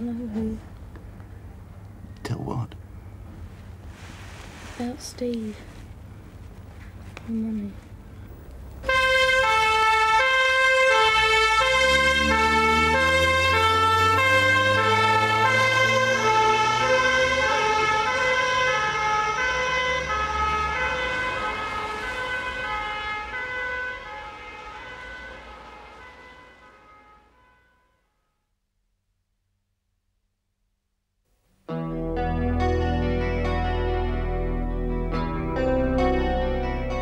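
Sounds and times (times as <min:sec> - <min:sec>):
vehicle engine rising in pitch: 0:08.2 - 0:27.1, 0:31.8 - 0:37.0
ambulance two-tone siren: 0:08.8 - 0:28.2.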